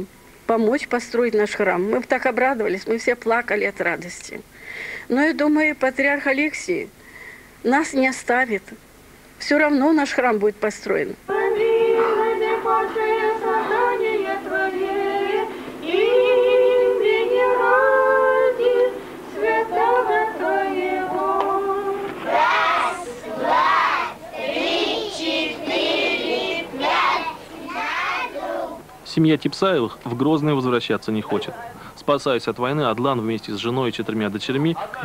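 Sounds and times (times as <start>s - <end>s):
women singing a church chant: 11.0s - 28.8s
children's voices: 21.0s - 28.9s.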